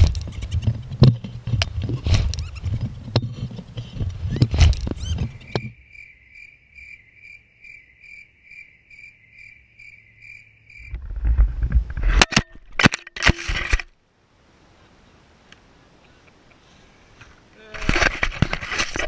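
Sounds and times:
sharp knocks and clatter: 0:00.0 - 0:05.8
cricket chirping: 0:04.1 - 0:12.6
wind rush on microphone: 0:10.9 - 0:12.2.

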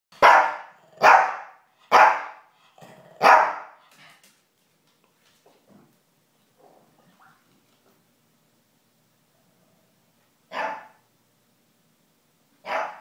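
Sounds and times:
small dog barking: 0:00.2 - 0:02.4, 0:03.2 - 0:03.8, 0:10.5 - 0:11.0, 0:12.6 - 0:13.0.

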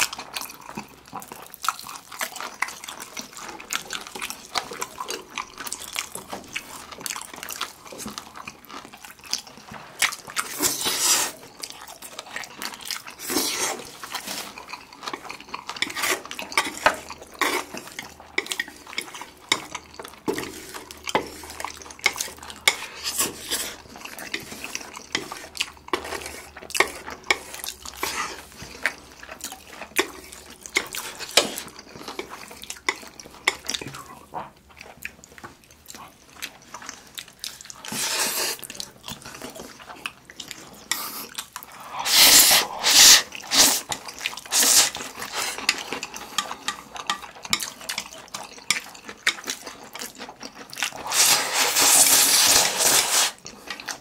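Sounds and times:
wet chewing and lip smacks: 0:00.0 - 0:51.5
slurping noodles: 0:10.4 - 0:11.6, 0:13.0 - 0:29.3, 0:37.5 - 0:39.9, 0:40.6 - 0:46.9, 0:48.0 - 0:54.0.

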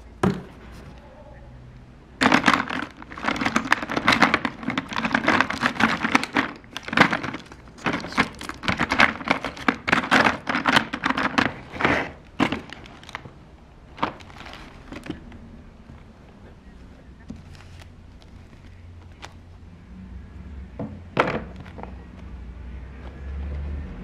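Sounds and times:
pens clattering in plastic drawer: 0:02.2 - 0:15.4.

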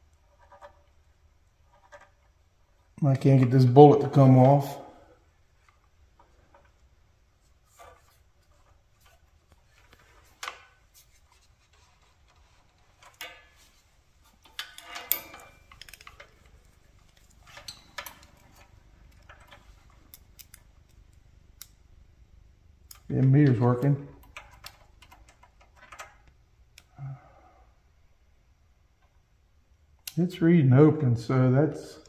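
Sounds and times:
hands handling wiring clicks: 0:14.4 - 0:21.8, 0:22.8 - 0:26.9.

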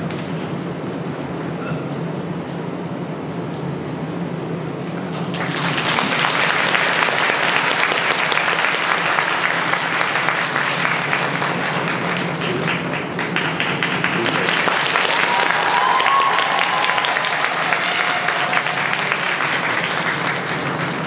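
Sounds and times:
audience applauding: 0:05.3 - 0:21.0.

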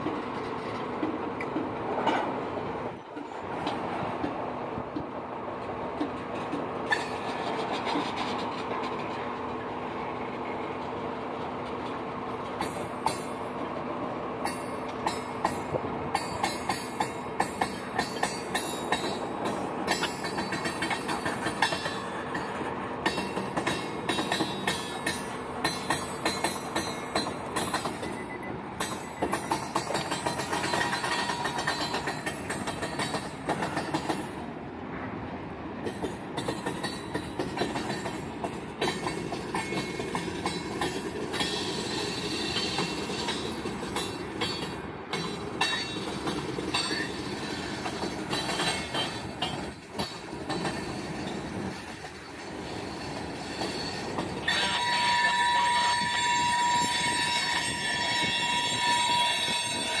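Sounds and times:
clicks over rail joints: 0:00.0 - 0:09.6, 0:28.8 - 0:34.4
train wheels rumbling on rail: 0:00.0 - 1:00.0
high wheel squeal: 0:50.6 - 1:00.0.

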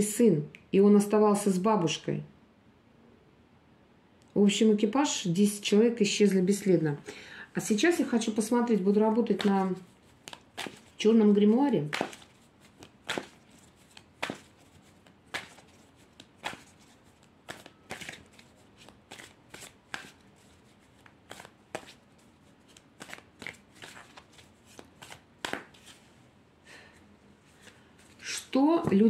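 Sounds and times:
cards being shuffled: 0:08.0 - 0:26.1, 0:27.5 - 0:29.0.

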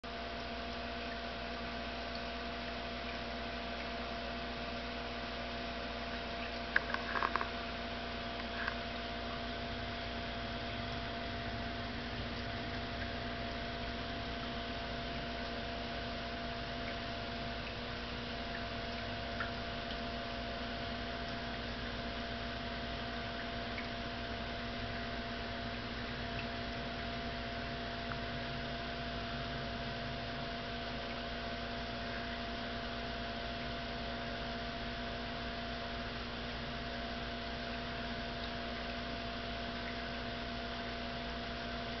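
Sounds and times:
aquarium air pump humming: 0:00.0 - 0:42.0
bubbling filter: 0:00.0 - 0:42.0
faint ticks: 0:06.1 - 0:07.6, 0:08.4 - 0:09.4.

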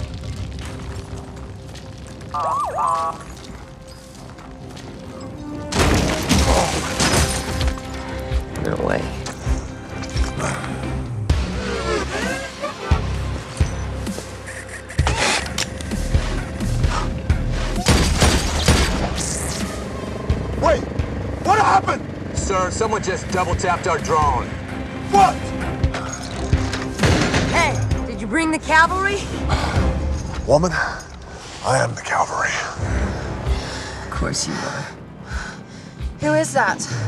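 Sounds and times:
action film score bass hits: 0:16.0 - 0:19.8.

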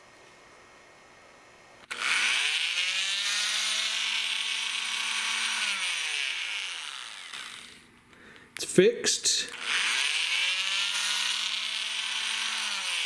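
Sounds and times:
oscillating multi-tool motor: 0:01.8 - 0:07.8, 0:09.5 - 0:13.0.

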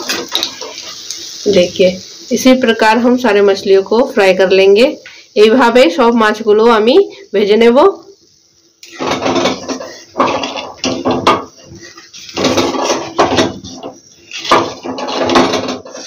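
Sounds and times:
metal spatula scraping pan: 0:00.0 - 0:01.0, 0:08.8 - 0:16.0.

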